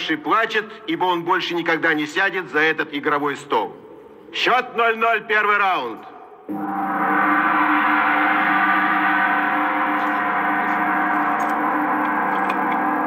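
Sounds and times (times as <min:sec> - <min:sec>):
ringing held chord: 0:06.5 - 0:13.0.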